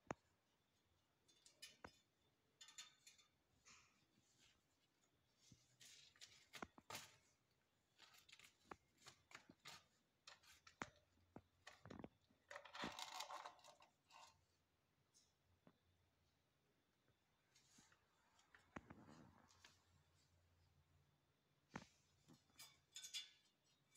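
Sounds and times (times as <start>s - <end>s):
kittens scuffling: 3.6s - 14.2s.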